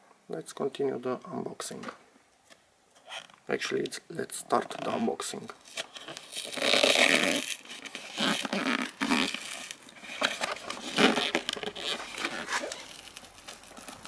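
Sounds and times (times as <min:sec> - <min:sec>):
cardboard scraping and crackling: 0:05.6 - 0:14.0.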